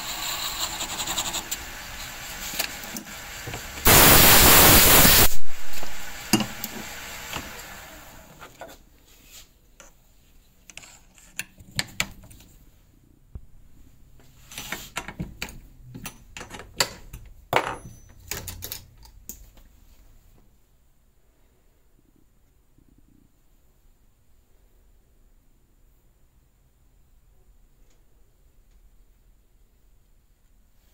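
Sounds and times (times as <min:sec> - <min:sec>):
lathe spinning down: 0:00.0 - 0:08.4.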